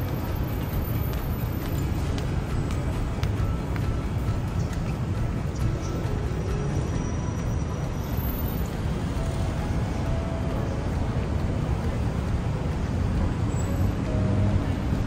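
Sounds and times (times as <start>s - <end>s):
traffic rumble: 0.0s - 15.0s.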